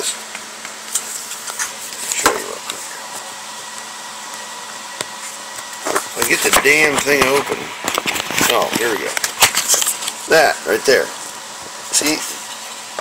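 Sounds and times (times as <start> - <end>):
packaging clicks and scrapes: 5.8 - 10.2.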